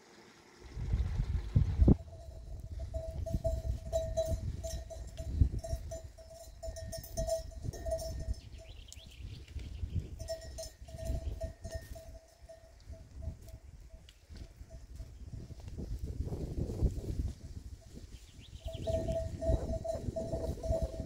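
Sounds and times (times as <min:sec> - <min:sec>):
livestock bells clanking: 0:01.9 - 0:09.2, 0:10.0 - 0:15.4, 0:17.4 - 0:21.0.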